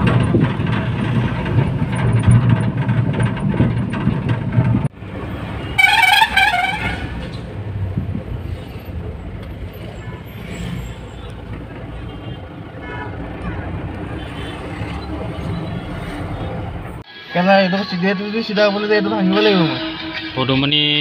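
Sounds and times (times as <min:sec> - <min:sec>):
road noise inside cab: 0:00.0 - 0:17.1
truck engine and road noise: 0:00.0 - 0:17.4
vehicle horn wavering: 0:05.6 - 0:07.2, 0:19.0 - 0:21.0.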